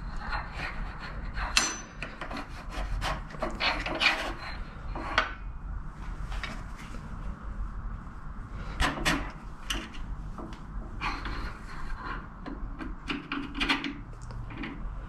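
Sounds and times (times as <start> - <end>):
metal scraping: 0.0 - 5.4, 10.8 - 15.0
low steady hum: 0.0 - 15.0.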